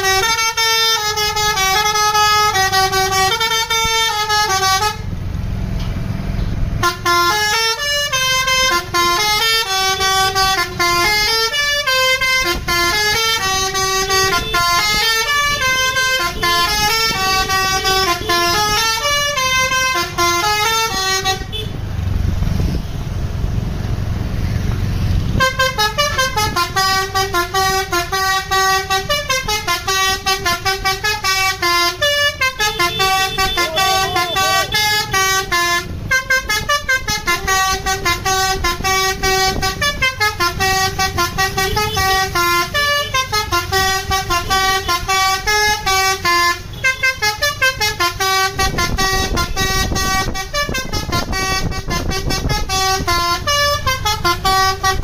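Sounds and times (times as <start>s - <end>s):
bus horn playing melody: 0.0s - 5.2s, 6.8s - 22.1s, 25.3s - 55.0s
bus engine rumble: 0.0s - 55.0s.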